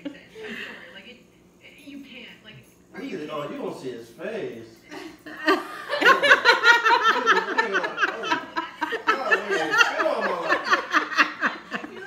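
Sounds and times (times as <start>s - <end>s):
woman laughing: 0.0s - 0.8s, 4.9s - 12.0s.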